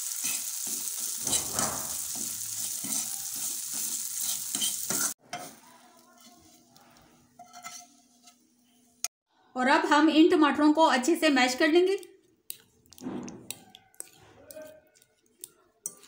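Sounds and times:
seeds sizzling in hot oil: 0.0s - 7.8s
fork scraping a pan: 0.1s - 8.9s, 12.5s - 16.0s.

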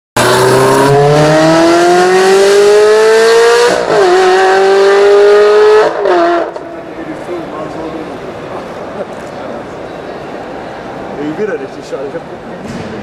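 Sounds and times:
car engine accelerating hard: 0.2s - 6.7s.

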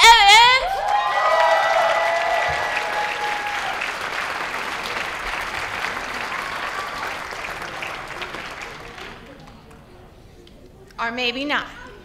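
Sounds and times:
whoops and cheers: 0.6s - 3.9s
audience applauding: 0.7s - 9.9s.

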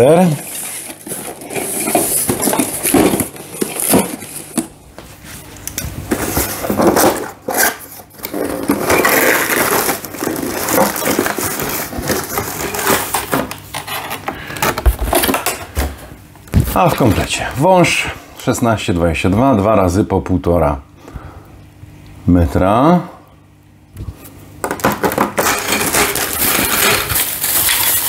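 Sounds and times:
plastic bags rustling: 0.0s - 15.6s, 24.7s - 28.0s.

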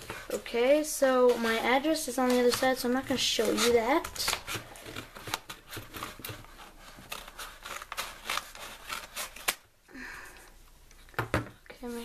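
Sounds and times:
paper crinkling: 1.1s - 9.6s
scissors cutting paper: 1.3s - 9.6s.

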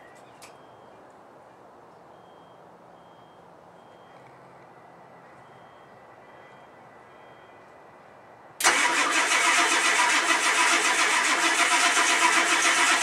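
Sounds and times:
diesel engine starter cranking: 8.6s - 13.0s.

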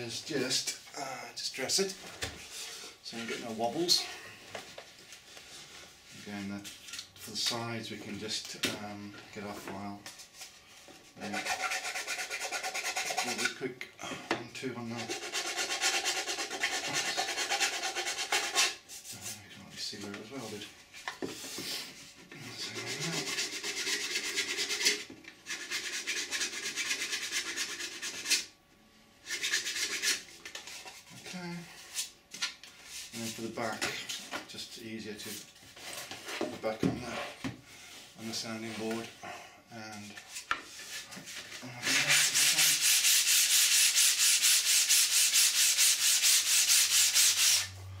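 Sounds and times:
hand file rasping on plastic: 11.2s - 13.6s, 15.0s - 18.8s
rhythmic sandpaper scraping: 11.2s - 13.6s, 14.9s - 19.4s, 22.5s - 28.5s, 29.2s - 31.1s, 40.3s - 47.8s.

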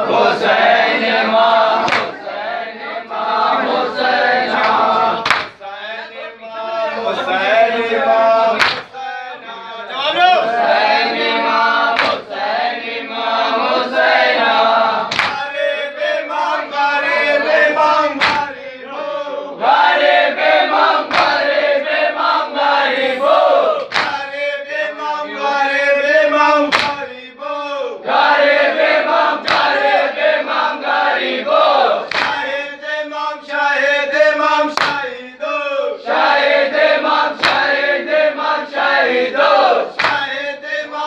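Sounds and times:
men chanting in unison: 0.0s - 41.0s
chest-beating slaps: 1.8s - 2.2s, 4.6s - 5.6s, 8.6s - 9.0s, 11.9s - 12.3s, 15.1s - 15.5s, 18.1s - 18.6s, 21.1s - 21.4s, 23.8s - 24.3s, 26.7s - 27.0s, 29.4s - 29.8s, 32.1s - 32.5s, 34.7s - 35.1s, 37.4s - 37.8s, 39.9s - 40.4s.

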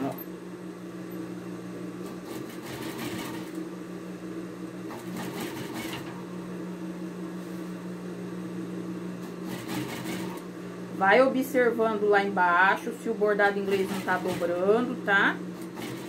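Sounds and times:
sewing machine running: 2.0s - 3.6s, 4.9s - 6.2s, 9.4s - 10.5s, 13.4s - 16.0s.

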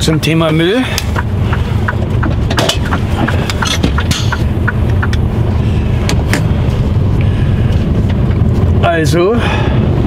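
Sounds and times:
truck diesel engine idling: 0.4s - 8.1s.

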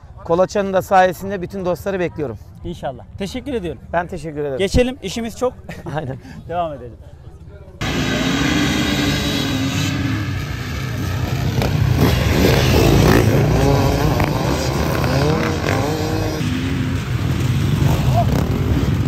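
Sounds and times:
dirt bikes revving: 7.8s - 19.0s.

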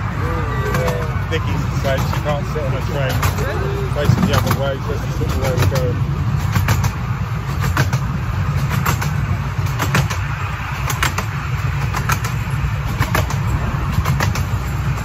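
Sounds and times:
train rumbling on track: 0.0s - 15.0s
clicks and clatter: 4.1s - 15.0s.

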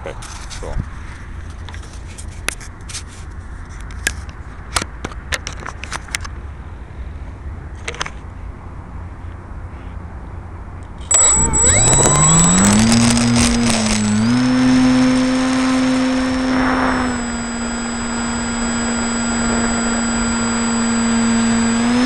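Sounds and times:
high whine: 11.1s - 22.0s
model plane motor spooling up: 11.1s - 22.0s.

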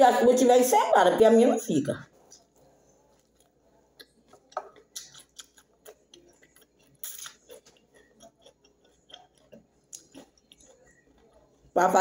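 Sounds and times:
person chewing wetly: 2.2s - 11.7s.

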